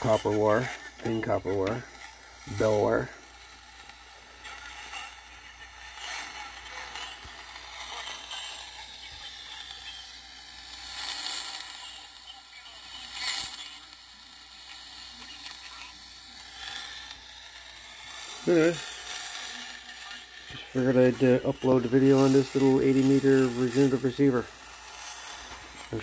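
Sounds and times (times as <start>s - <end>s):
radio static hiss: 0.0s - 10.2s, 18.4s - 18.9s, 19.5s - 24.6s, 25.4s - 26.0s
high-pitched radio whistle: 0.0s - 17.4s, 18.4s - 26.0s.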